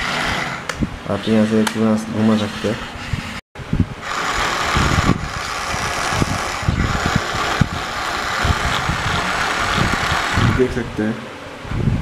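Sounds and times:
toy electric motor whirring: 4.0s - 10.8s.

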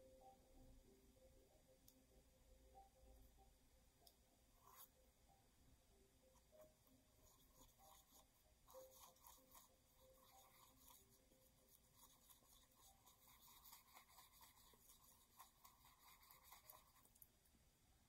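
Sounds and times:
paintbrush scratching on paper: 4.6s - 4.9s, 6.4s - 17.2s.

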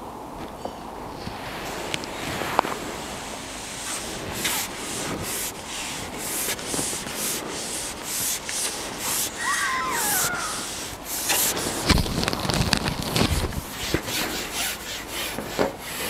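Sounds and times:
rubbing or scraping strokes: 3.7s - 16.0s.

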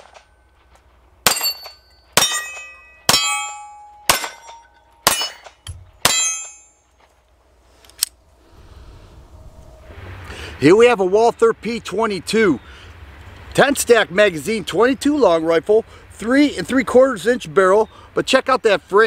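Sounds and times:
pistol shots: 1.2s - 6.5s
steel plate target ringing: 1.2s - 6.9s.

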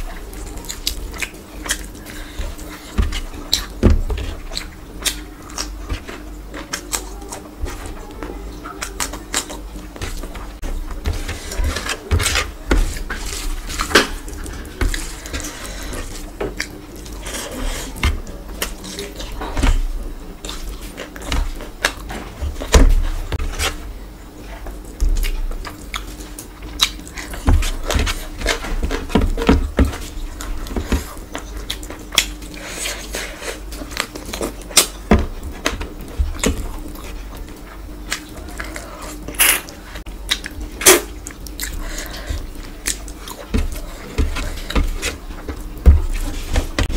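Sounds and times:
wet chewing and mouth smacks: 25.2s - 27.8s, 36.4s - 43.9s.

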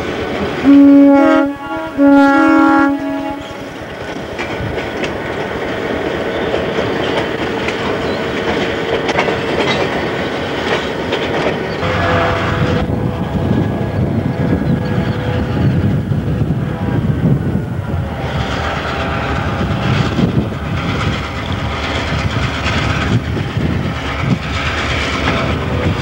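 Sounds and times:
locomotive horn blast: 0.6s - 3.8s, 11.8s - 15.5s
wheels clicking over rail joints: 3.0s - 12.2s, 18.4s - 26.0s.

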